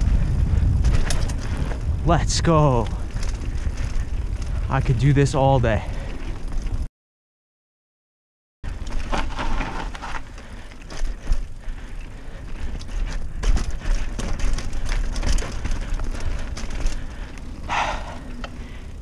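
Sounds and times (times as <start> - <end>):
bike rattling over bumps: 0.0 - 6.9, 8.6 - 19.0
bike tyres on dirt: 0.0 - 6.9, 8.6 - 19.0
wind rumbling on microphone: 0.0 - 6.9, 8.7 - 19.0.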